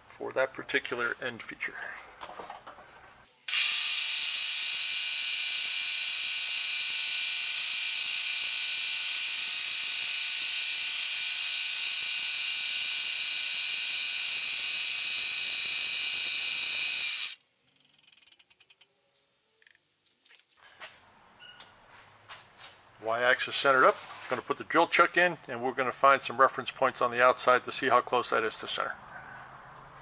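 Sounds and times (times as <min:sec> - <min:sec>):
milling spindle whine: 0:04.2 - 0:18.8.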